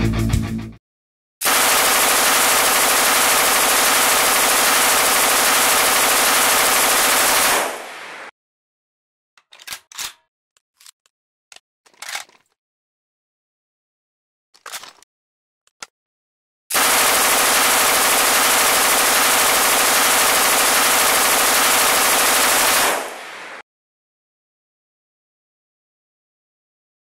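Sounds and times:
machine gun firing: 1.4 - 8.3, 16.7 - 23.6
gun reloading clacks: 9.4 - 12.6, 14.6 - 15.1.

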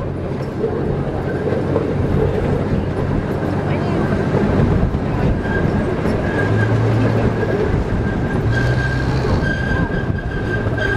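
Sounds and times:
miniature train rumble: 0.0 - 10.9
train wheels squealing: 5.2 - 10.9.

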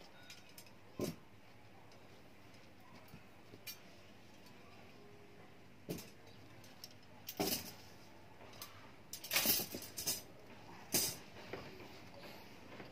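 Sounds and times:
metal wire rods rattling: 5.9 - 7.9, 8.5 - 10.3.

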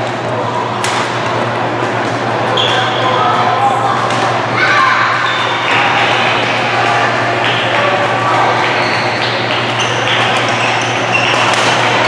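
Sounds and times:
sports hall din: 0.0 - 12.0
racket hitting shuttlecock: 0.8 - 1.4, 11.3 - 12.0
sneakers squeaking on court floor: 2.5 - 3.4, 5.2 - 6.6, 8.4 - 12.0.

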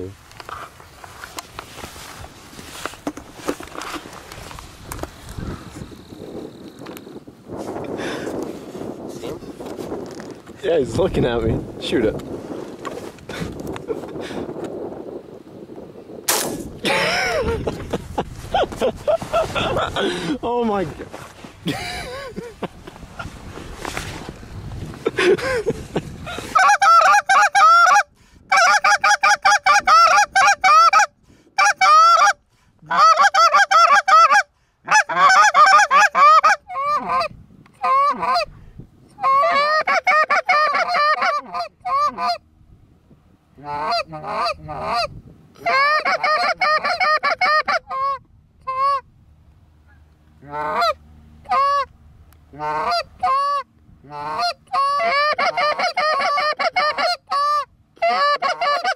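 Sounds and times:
goose honking and clucking: 26.5 - 38.5, 39.2 - 42.4, 43.6 - 49.0, 49.9 - 51.9, 52.5 - 58.9.

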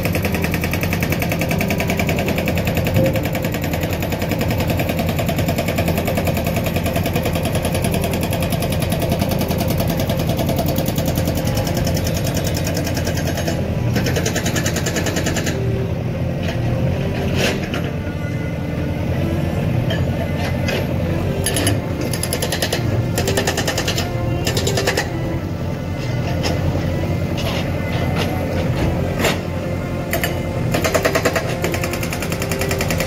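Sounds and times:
diesel engine running hard: 0.0 - 33.0.

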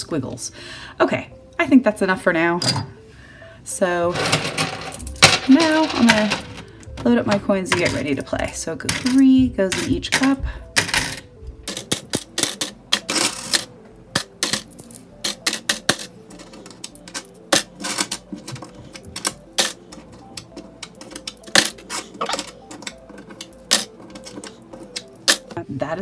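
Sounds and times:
coins clinking into plastic tray: 4.1 - 7.1, 8.9 - 25.6.

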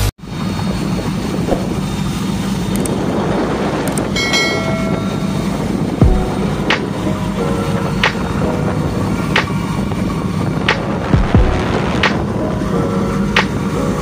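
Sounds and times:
ship engine rumble: 0.0 - 14.0
wind: 0.0 - 14.0
rushing water: 0.2 - 14.0
brief whoosh: 1.4 - 2.0.

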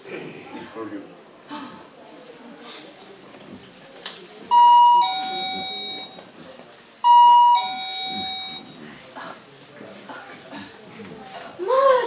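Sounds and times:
doorbell ding-dong chime: 4.5 - 6.2, 7.1 - 8.6.

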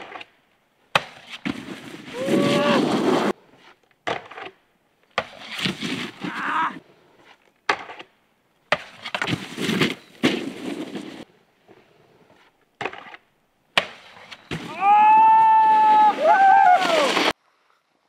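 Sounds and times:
snowboard hitting snow: 0.9 - 3.4, 5.2 - 6.6, 8.7 - 11.3, 13.8 - 17.4
snowboard scraping snow: 1.1 - 3.8, 5.3 - 6.8, 8.9 - 12.6, 14.1 - 17.4
person whooping: 2.1 - 2.9, 6.3 - 6.8, 14.7 - 17.3.

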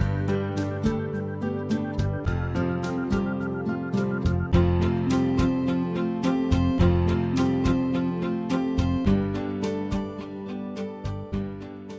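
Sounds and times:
plucked string music: 0.0 - 11.9.

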